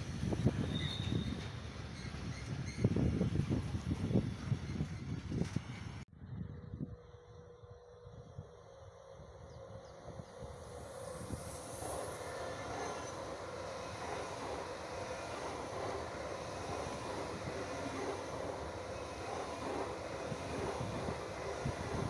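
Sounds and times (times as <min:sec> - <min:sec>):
high-speed train passing: 0:00.0 - 0:22.0.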